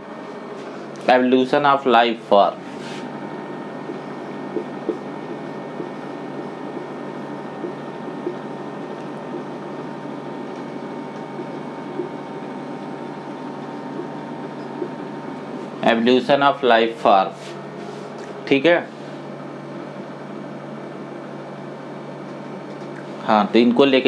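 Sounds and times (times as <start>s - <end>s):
room hum: 0.0s - 24.0s
marker writing on whiteboard: 3.8s - 6.0s.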